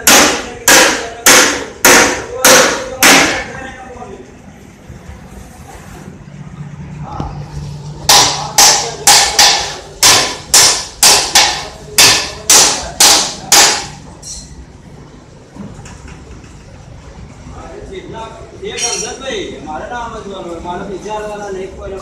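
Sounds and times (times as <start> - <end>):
sharp bangs: 0.0 - 3.6, 8.0 - 14.1.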